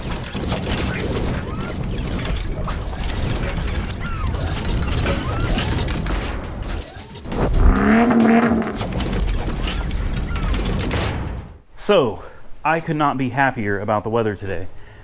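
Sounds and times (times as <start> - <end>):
deep rumble: 7.3 - 9.0
loud pitched tone: 7.6 - 8.8.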